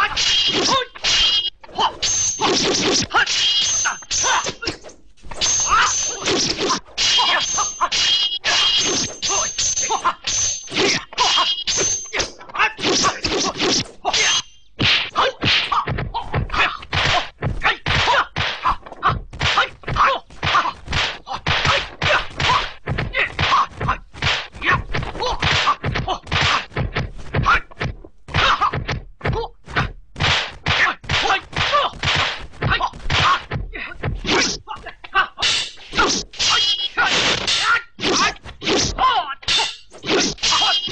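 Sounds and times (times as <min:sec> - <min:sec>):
fight sound effect whacks: 0:20.4 - 0:24.6, 0:30.2 - 0:33.5.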